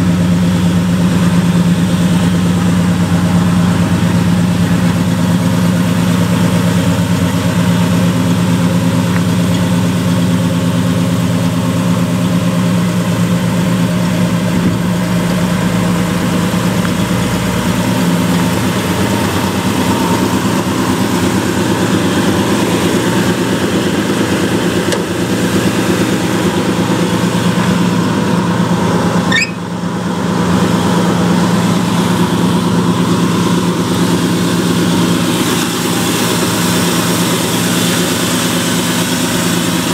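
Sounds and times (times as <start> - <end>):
pickup truck engine idling: 0.0 - 39.9.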